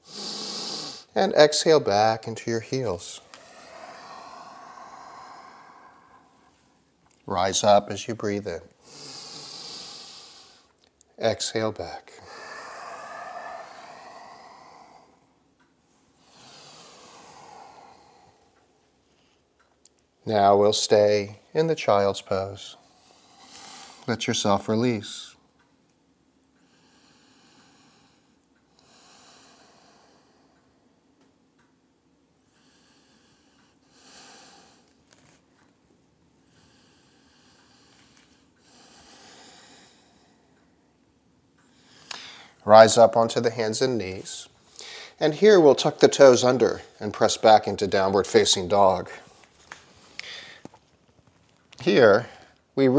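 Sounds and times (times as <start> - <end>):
man breathing deeply: 0.0 - 1.1, 2.8 - 6.9, 8.8 - 10.7, 12.1 - 19.4, 22.8 - 24.1, 26.6 - 31.0, 32.4 - 34.9, 36.4 - 40.9, 41.6 - 43.0, 44.6 - 45.2, 49.2 - 50.8
person breathing through nose: 0.0 - 1.1, 3.2 - 6.8, 12.2 - 15.4, 16.2 - 18.6, 41.7 - 42.6, 50.0 - 50.7.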